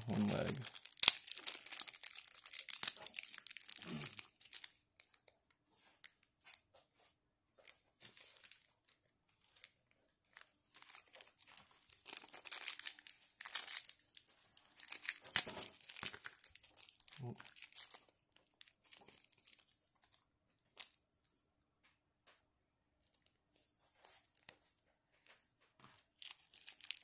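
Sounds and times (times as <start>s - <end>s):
plastic bags crinkling: 0.0s - 5.3s, 7.6s - 21.0s, 25.8s - 27.0s.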